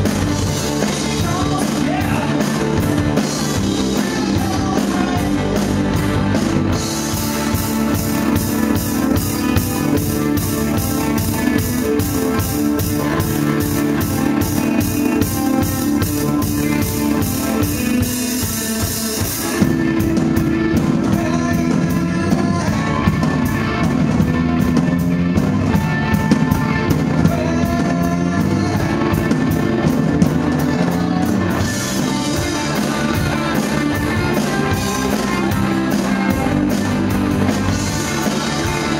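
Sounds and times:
cymbals keeping an even beat: 0.0s - 27.6s
rock band playing live: 0.0s - 38.9s.

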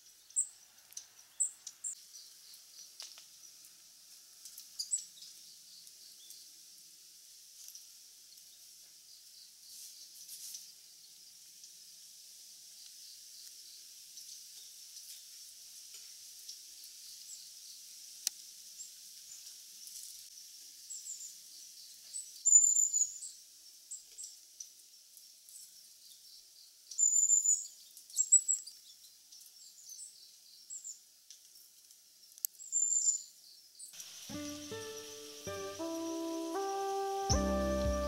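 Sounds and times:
steady high hiss: 34.0s - 38.0s.

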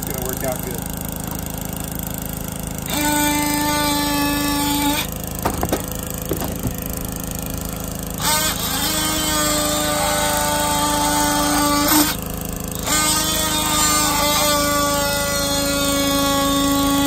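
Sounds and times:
oscillating multi-tool whining: 2.7s - 5.6s, 8.1s - 17.0s
short knocks: 5.4s - 7.3s.

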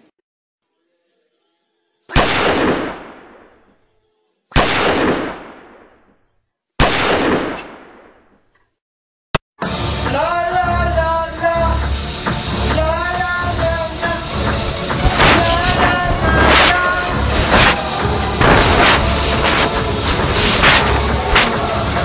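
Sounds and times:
gunshots: 2.1s - 3.7s, 4.5s - 6.2s, 6.8s - 8.3s, 15.0s - 21.6s.

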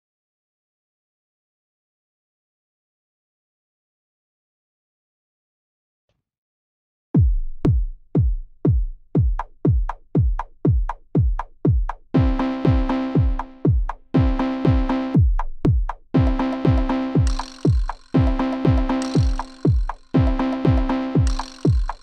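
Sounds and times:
drum machine kick drum: 7.2s - 22.0s.

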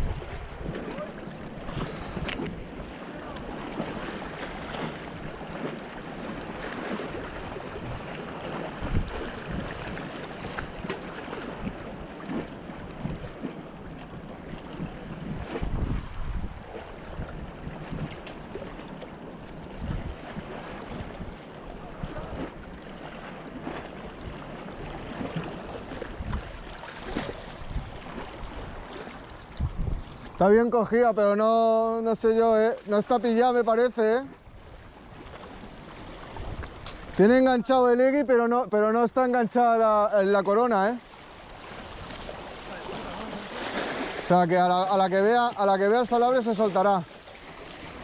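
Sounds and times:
wind buffeting microphone: 0.0s - 22.7s, 23.6s - 33.4s, 34.3s - 37.7s
waves washing against rocks: 0.0s - 34.3s, 39.6s - 48.0s
water splashes: 0.0s - 48.0s.

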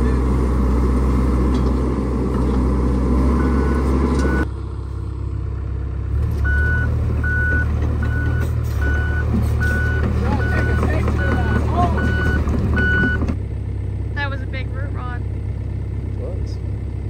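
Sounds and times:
excavator diesel engine drone: 0.0s - 17.0s
travel alarm beeping: 3.4s - 4.4s, 6.5s - 13.2s.

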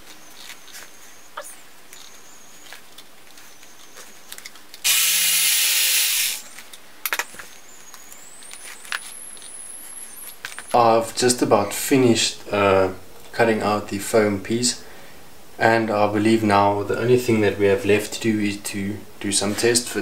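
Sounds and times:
electric carving knife buzzing: 4.8s - 6.5s.

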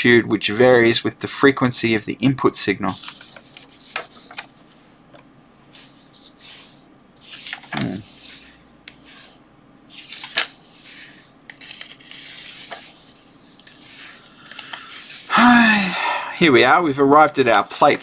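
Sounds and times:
book pages rustling: 2.9s - 4.8s, 5.7s - 15.3s.

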